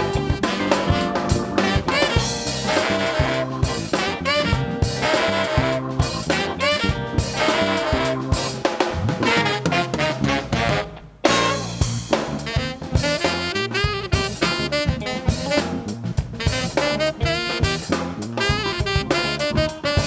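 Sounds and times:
funk band playing: 0.0 - 20.0
saxophone horn section: 0.0 - 20.0.

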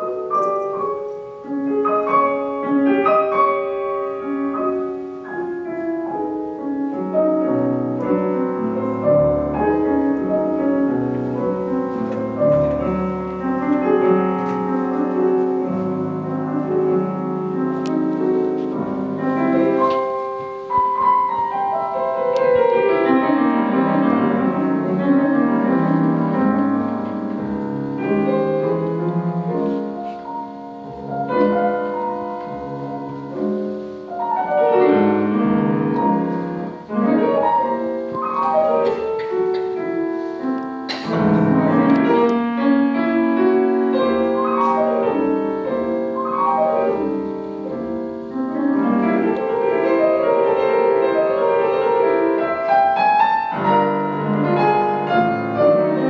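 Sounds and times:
solo classical piano: 0.0 - 56.0.

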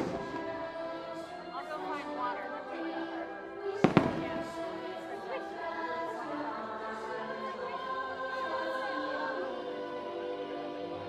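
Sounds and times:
choir singing held chords: 0.0 - 11.0.

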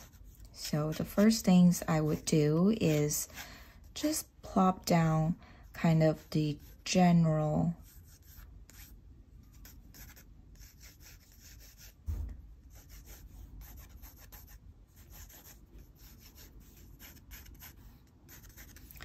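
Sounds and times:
pencil scratching on paper: 0.0 - 3.4, 5.7 - 12.0, 12.7 - 19.0
low thump: 12.0 - 12.5.

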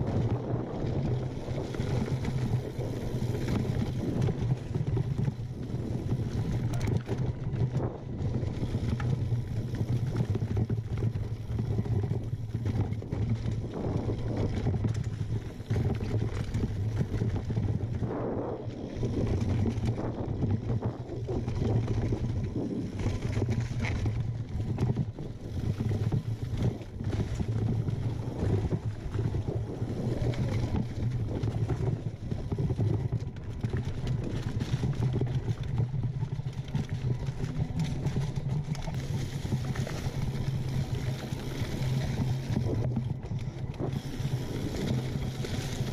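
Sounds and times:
bike rattling over rocks: 0.0 - 45.9
bike tyres rumbling: 0.0 - 45.9.

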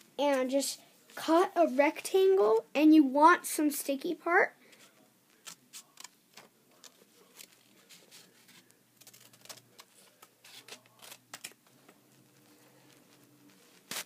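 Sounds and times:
paper rustling: 4.7 - 14.0
scissors snipping paper: 5.4 - 11.6.

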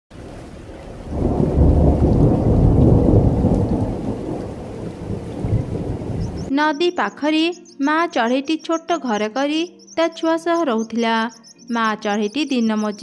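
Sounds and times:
steady rain: 0.1 - 6.5
thunder rumble: 0.1 - 6.5.

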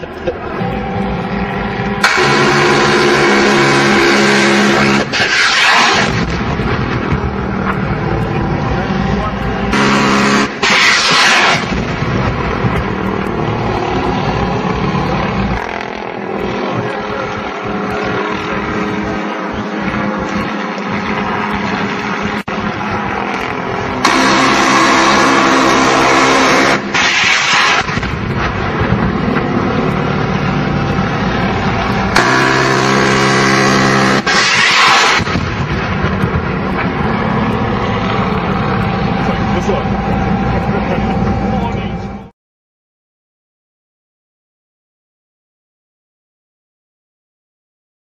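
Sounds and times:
loud burst of noise: 2.0 - 15.8, 22.3 - 41.7
helicopter engine and rotor: 36.3 - 42.3.

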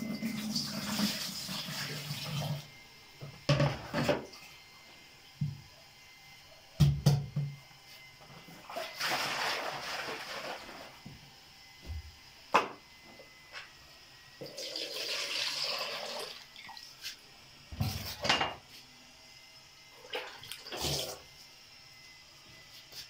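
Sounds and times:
buttermilk pouring and splashing: 8.7 - 11.0, 14.4 - 16.9.

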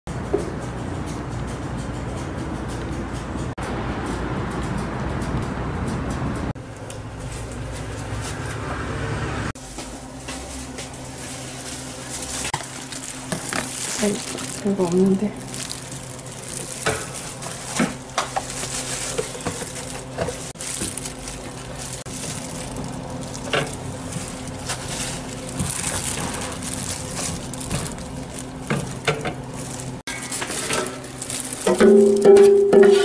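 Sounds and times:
steady low hum: 9.5 - 32.4
utensils clicking and tapping: 12.4 - 33.0.

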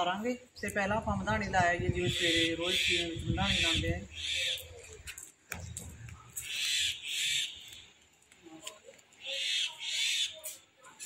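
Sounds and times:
bird calling: 2.0 - 5.2, 5.9 - 8.0, 8.7 - 10.6.

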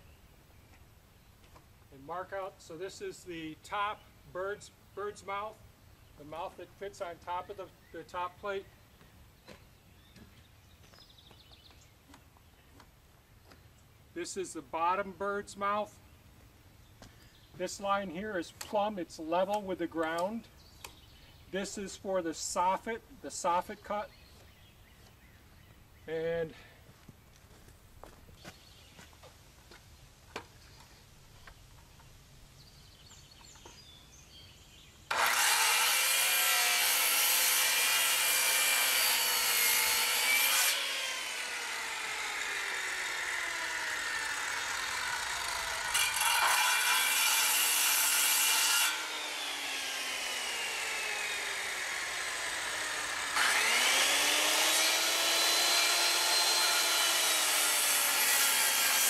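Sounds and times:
circular saw whining: 35.1 - 59.0.

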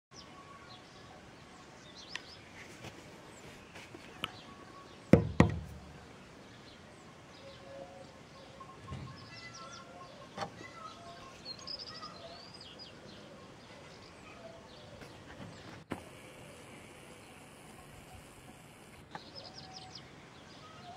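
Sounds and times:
faint background noise: 0.1 - 20.9
small birds chirping: 0.1 - 20.9
knocks: 5.1 - 5.9.

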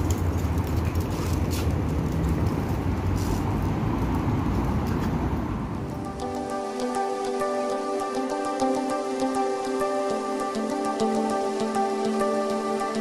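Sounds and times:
city traffic rumble: 0.0 - 7.6
gentle intro music: 5.8 - 13.0.

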